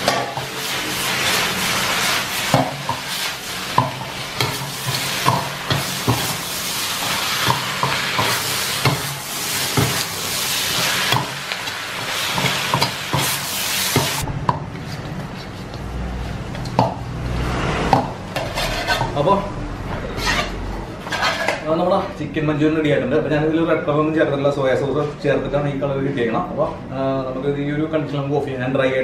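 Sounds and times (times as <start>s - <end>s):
food sizzling in wok: 0.0s - 14.3s.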